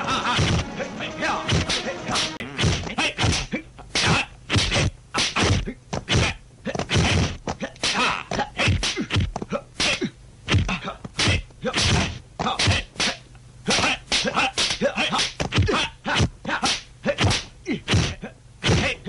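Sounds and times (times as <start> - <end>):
fighters shouting: 0.0 - 9.2, 9.8 - 19.0
punch and kick hits: 1.5 - 7.4, 8.6 - 13.2, 17.2 - 19.0.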